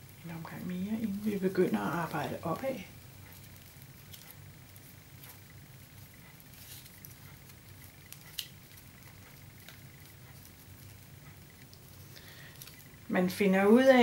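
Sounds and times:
paper tubes rustling: 0.0s - 11.1s
low steady hum: 0.0s - 14.0s.

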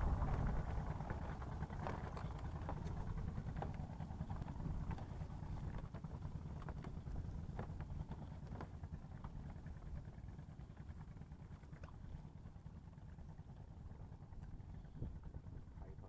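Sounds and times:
wind buffeting microphone: 0.0s - 7.4s, 14.6s - 15.9s.

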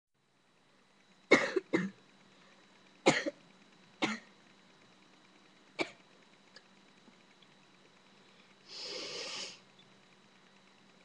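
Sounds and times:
boy coughing: 1.3s - 2.0s, 3.1s - 3.4s.

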